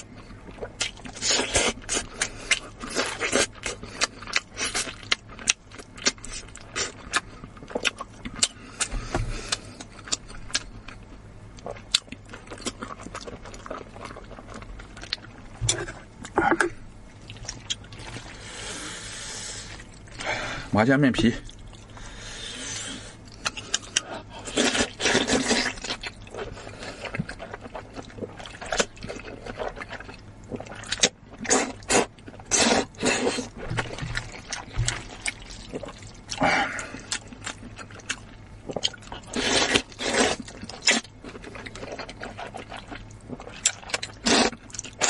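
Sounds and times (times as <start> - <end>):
slurping noodles: 24.4 - 27.6, 30.6 - 37.1, 39.2 - 41.0, 44.2 - 44.6.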